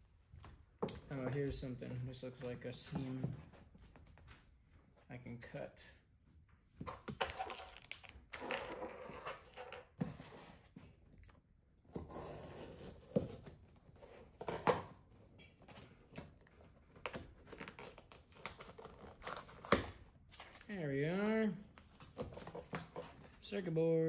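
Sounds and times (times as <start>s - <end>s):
cardboard and tape tearing: 16.9s - 20.7s.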